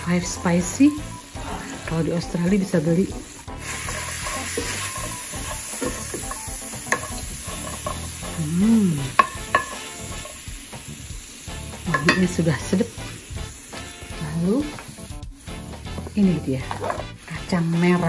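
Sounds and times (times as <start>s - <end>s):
meat sizzling in a pot: 0.0s - 18.0s
wooden spoon scraping a pot: 3.6s - 8.3s, 9.1s - 10.4s, 15.9s - 17.2s
spoon clicking against pot: 6.1s - 8.0s, 9.2s - 9.8s.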